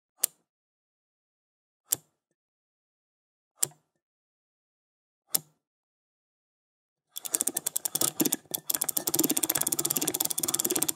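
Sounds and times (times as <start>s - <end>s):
combination lock dial clicks: 7.2s - 10.9s.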